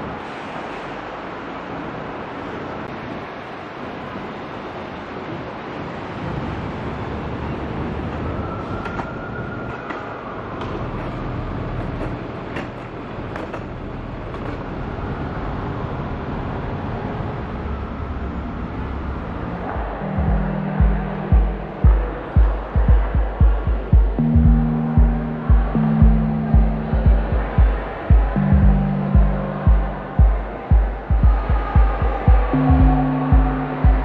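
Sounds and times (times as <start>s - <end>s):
city street traffic rumble: 0.0s - 34.0s
background music with pulsing beat: 19.6s - 34.0s.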